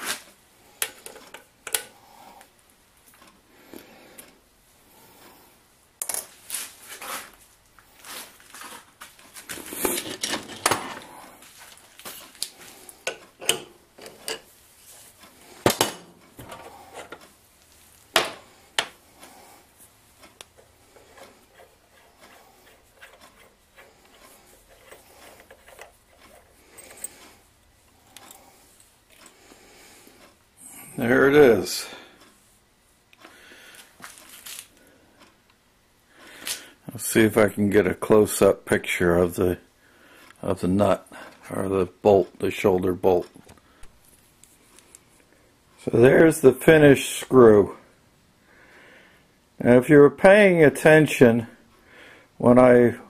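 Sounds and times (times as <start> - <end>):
metal parts clinking and knocking: 21.5 - 27.3.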